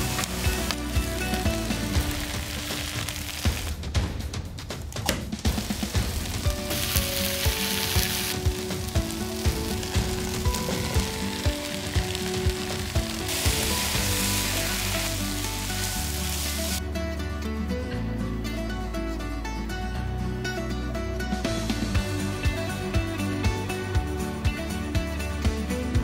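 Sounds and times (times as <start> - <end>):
food sizzling in a skillet: 0.0 - 3.7, 5.5 - 16.8
background music with beat: 0.0 - 26.0.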